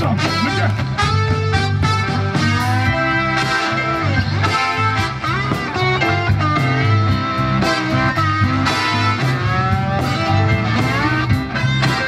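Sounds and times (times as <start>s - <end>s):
bending guitar notes: 0.0s - 12.0s
live rock band playing: 0.0s - 12.0s.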